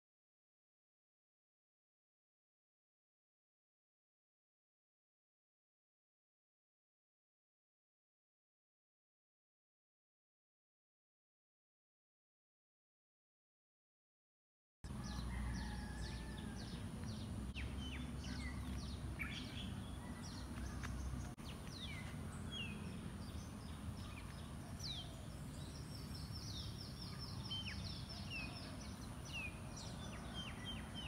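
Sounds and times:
small birds chirping: 14.9 - 31.0.

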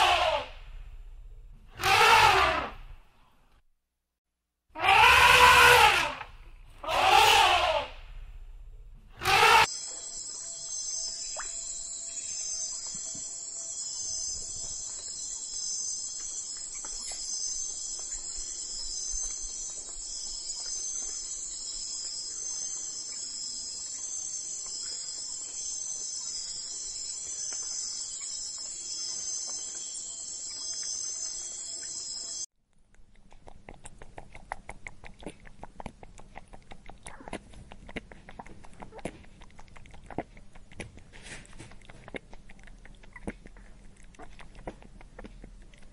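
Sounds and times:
insects chirping: 9.6 - 32.5.

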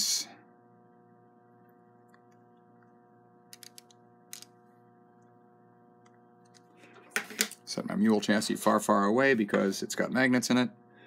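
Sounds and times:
faint electrical hum: 0.0 - 11.0.

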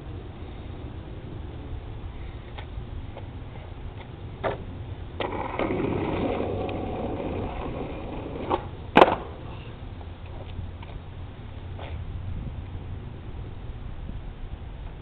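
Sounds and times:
skateboard rolling on asphalt: 0.0 - 15.0
skateboard deck clacking on pavement: 4.4 - 9.5
skateboard deck knocking: 5.2 - 9.5.

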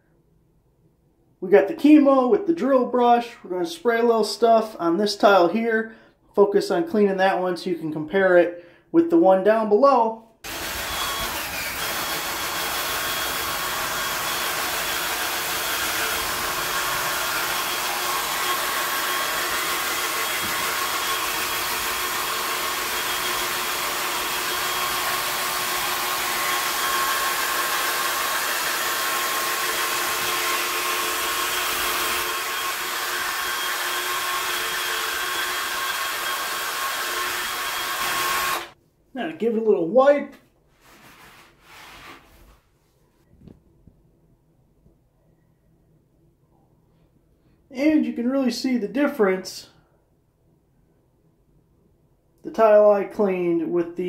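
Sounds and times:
drill motor whine: 10.5 - 38.8.

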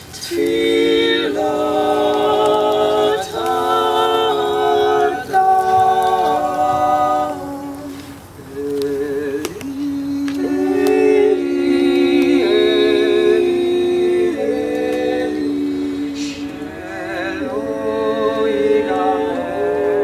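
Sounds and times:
vocal quartet singing a cappella: 0.0 - 20.0.

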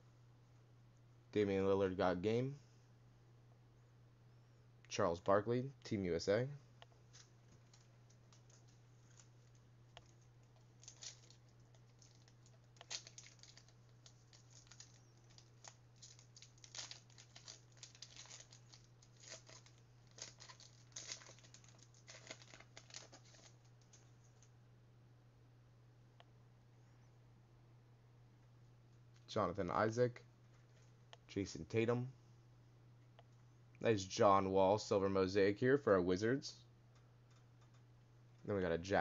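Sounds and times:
trading cards rustling and crinkling: 6.9 - 24.5.

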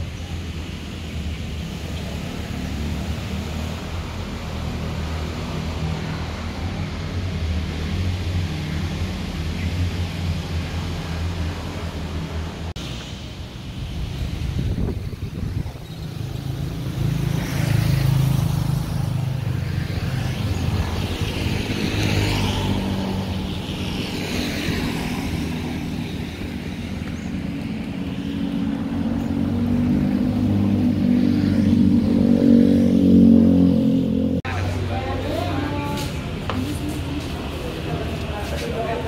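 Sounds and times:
cars and motorbikes passing: 0.0 - 39.0.

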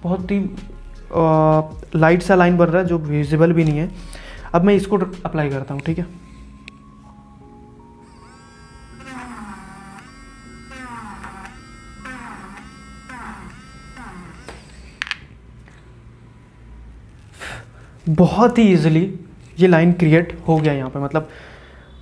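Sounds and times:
small motor whining: 8.0 - 15.3.

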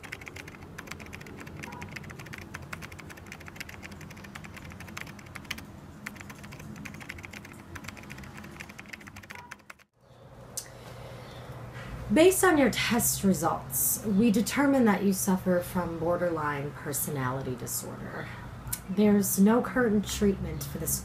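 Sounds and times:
fast typing on laptop keyboard: 0.0 - 9.9
faint room hum: 10.0 - 21.0.

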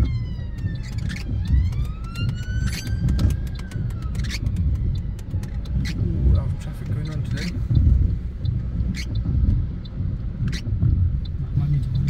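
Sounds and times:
emergency siren wailing: 0.0 - 7.7
car cabin rumble: 0.0 - 12.0.

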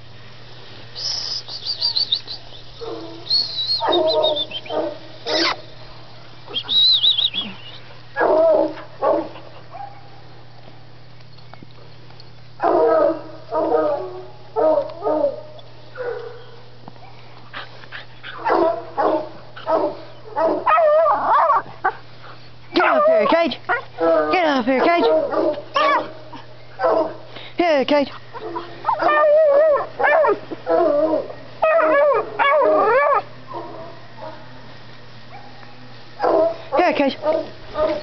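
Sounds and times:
puppy barking: 2.8 - 5.6, 18.4 - 21.7, 22.8 - 23.9, 24.8 - 26.2, 26.8 - 27.2, 28.4 - 34.5, 36.2 - 38.0
high-pitched yelps: 5.3 - 5.6.

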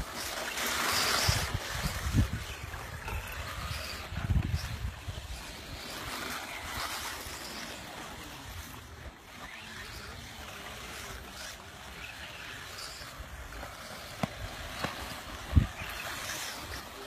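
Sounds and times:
wind buffeting microphone: 0.8 - 7.4, 12.8 - 17.0.

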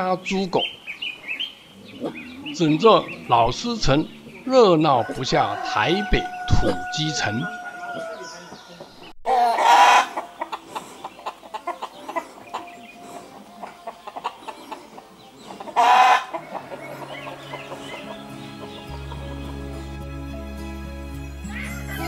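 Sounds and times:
chickens clucking: 0.0 - 20.6
loud rooster calls: 4.9 - 8.4, 9.3 - 10.2, 15.8 - 18.2.

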